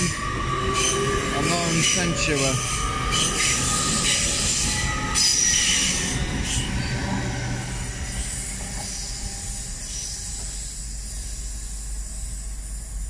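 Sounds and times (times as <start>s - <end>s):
train rolling past: 0.0s - 13.0s.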